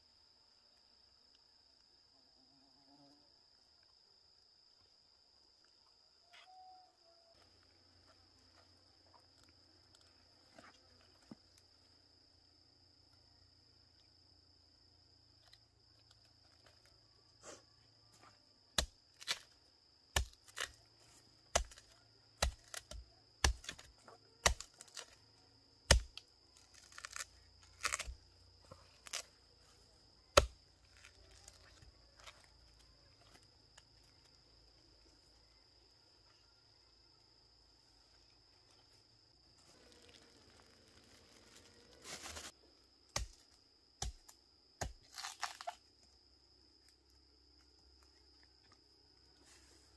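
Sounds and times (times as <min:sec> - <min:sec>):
high insect buzz: 0:00.0 - 0:05.0
machete chopping wood: 0:18.8 - 0:19.5, 0:20.1 - 0:20.8, 0:21.5 - 0:25.1, 0:25.9 - 0:26.2, 0:26.8 - 0:28.2, 0:30.3 - 0:30.6, 0:43.1 - 0:45.8.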